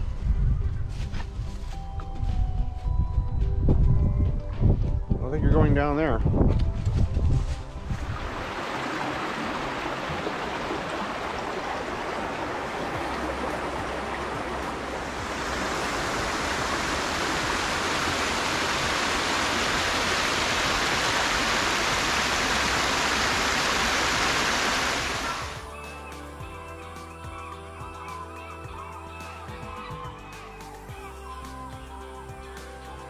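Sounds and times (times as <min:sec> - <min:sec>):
creek rushing over rocks: 0:08.0 - 0:25.6.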